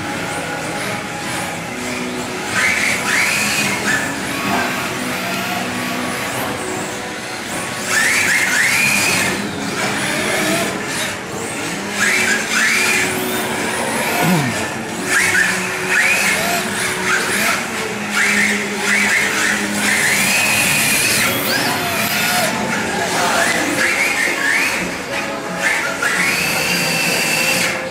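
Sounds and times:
steady running hum: 9.2s - 23.6s.

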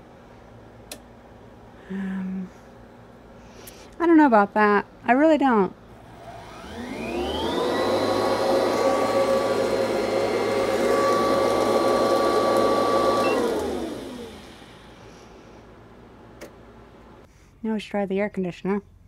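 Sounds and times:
vacuum cleaner motor: 6.0s - 15.4s.

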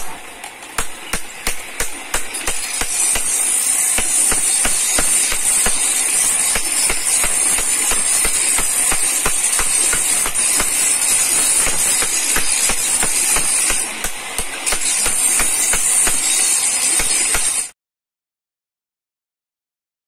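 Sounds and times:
hammer tapping chisel on stone: 0.8s - 16.4s.

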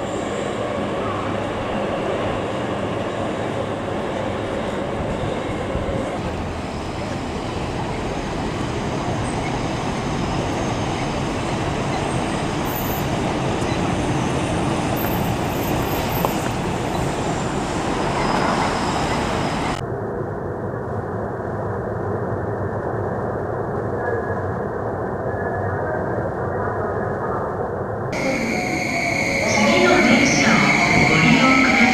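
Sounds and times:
train wheels rumbling on rails: 0.0s - 19.8s, 28.2s - 31.9s.

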